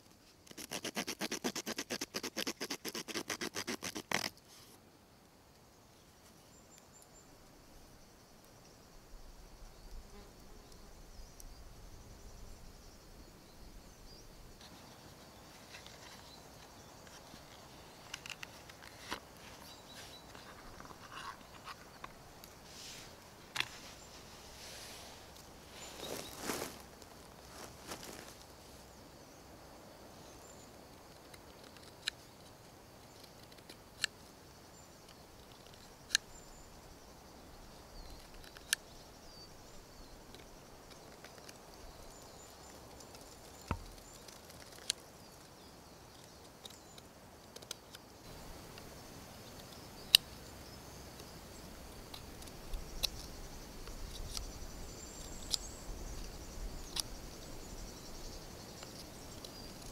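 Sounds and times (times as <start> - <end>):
knife whittling wood: 0.5 - 4.3.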